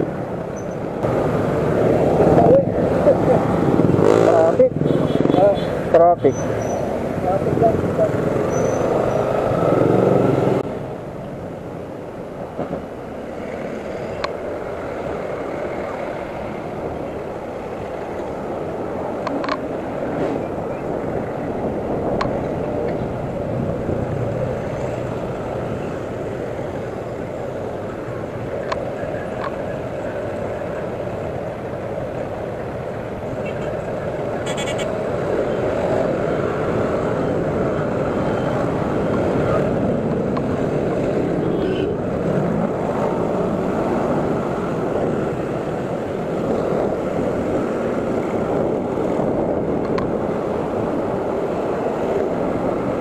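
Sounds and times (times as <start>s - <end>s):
car and motorcycle engines: 0.0s - 53.0s
wind over microphone: 13.5s - 53.0s.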